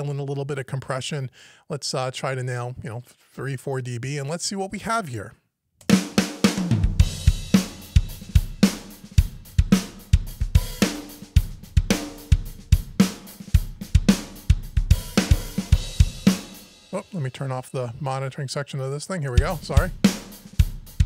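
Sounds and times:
rock drum loop: 5.8s - 18.0s, 19.2s - 21.0s.

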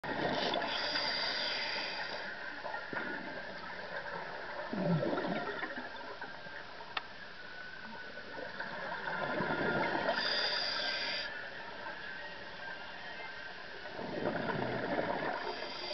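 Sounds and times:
scuba regulator hissing inhalation: 0.6s - 2.3s, 10.0s - 11.3s, 15.4s - 15.9s
bubbling exhalations: 4.7s - 5.8s.

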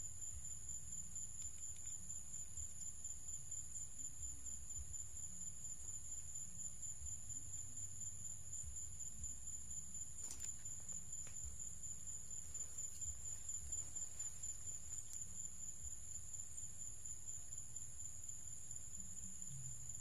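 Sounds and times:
high-pitched insect chorus: 0.0s - 20.0s
faint clicks: 1.4s - 2.5s.

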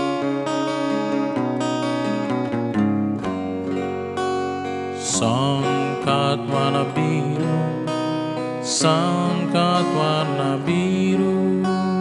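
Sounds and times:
acoustic guitar chords: 0.0s - 12.0s.

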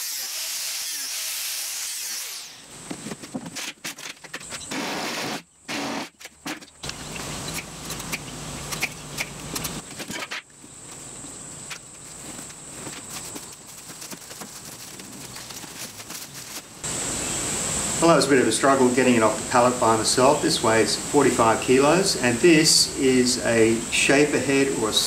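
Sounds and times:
plastic wrap rustling: 12.0s - 16.8s.

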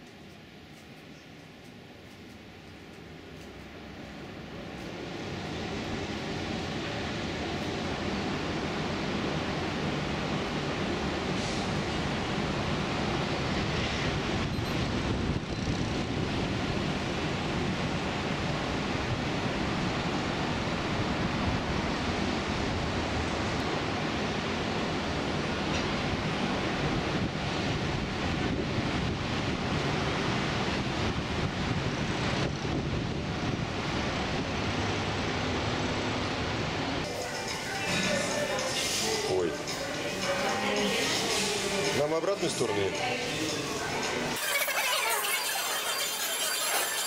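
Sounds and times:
wind rushing over microphone: 10.8s - 37.1s.

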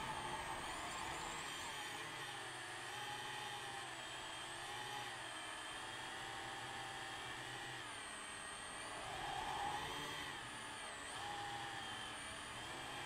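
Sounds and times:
drone propellers whining: 0.0s - 2.8s, 8.9s - 10.4s.

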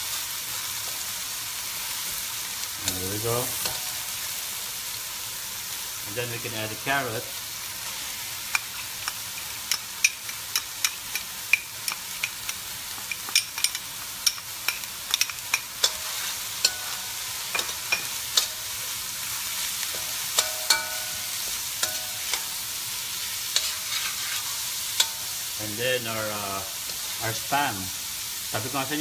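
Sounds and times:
vegetables sizzling in oil: 0.0s - 29.0s
metal spoon scraping pan: 13.1s - 25.6s.

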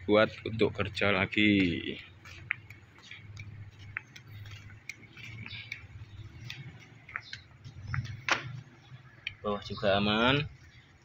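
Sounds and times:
faint chirps and clicks: 2.3s - 9.5s.

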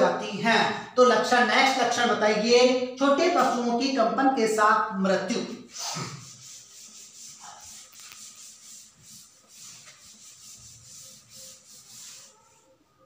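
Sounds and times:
cloth wiping chalkboard: 3.4s - 3.8s, 5.7s - 12.9s.

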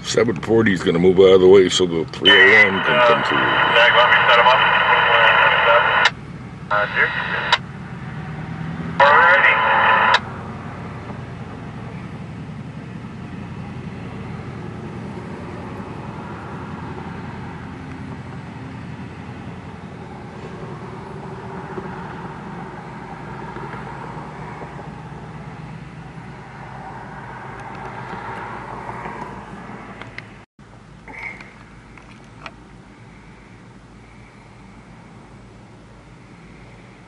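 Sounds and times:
diesel locomotive running: 0.0s - 37.0s.

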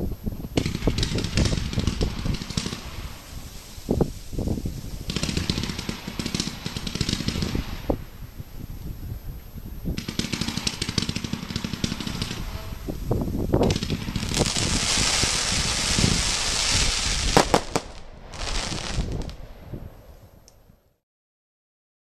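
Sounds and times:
crackling fizz of fireworks: 0.0s - 20.6s
sharp firework bangs: 0.6s - 8.1s, 10.0s - 19.8s
firework launch thumps: 11.8s - 19.4s.

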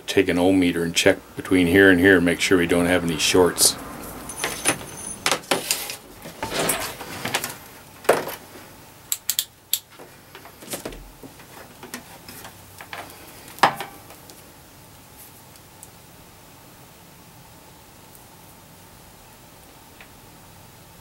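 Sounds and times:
multimeter handling clicks and knocks: 9.1s - 9.9s.

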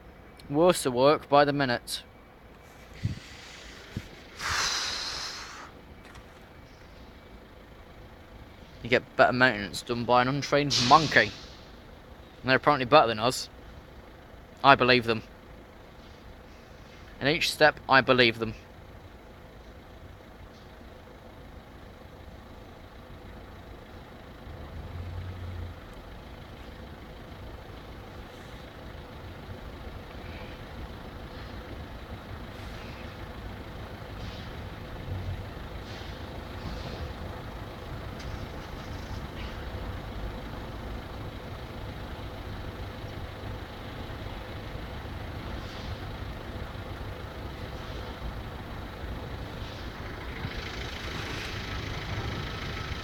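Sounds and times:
low engine and traffic rumble: 0.0s - 53.0s.

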